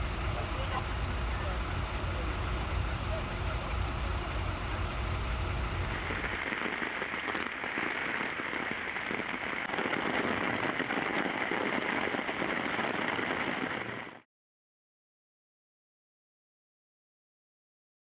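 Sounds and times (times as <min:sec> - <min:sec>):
low engine rumble: 0:00.0 - 0:14.1
heavy rain on pavement: 0:00.0 - 0:14.2.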